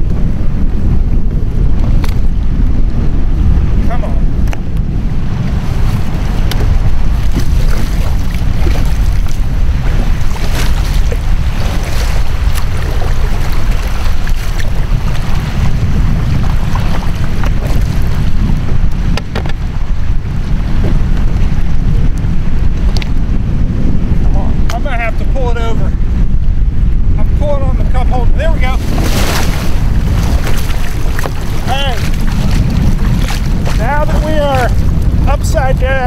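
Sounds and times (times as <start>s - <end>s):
wind buffeting microphone: 0.0s - 36.0s
kayak paddle splashing: 5.5s - 21.6s, 28.6s - 35.1s.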